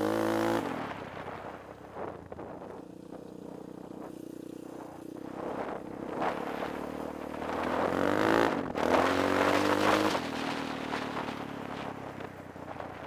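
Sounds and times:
quad engine revving: 0:00.0 - 0:01.0, 0:02.8 - 0:12.2.

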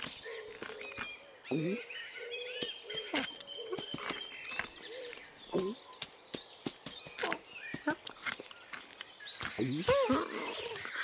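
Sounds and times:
birds chirping: 0:00.0 - 0:11.0
small footsteps on grass: 0:02.6 - 0:11.0.

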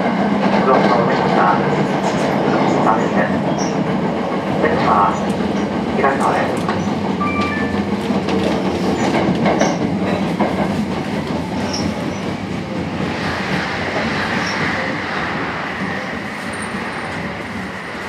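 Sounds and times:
train wheels clicking over rail joints: 0:08.2 - 0:12.4.

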